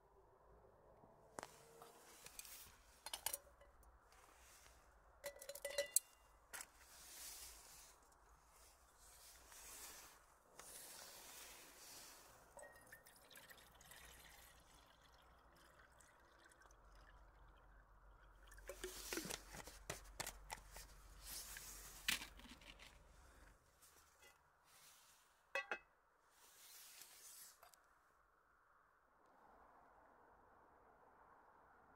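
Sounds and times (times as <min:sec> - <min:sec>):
water pouring into pot: 0:11.3 - 0:19.4.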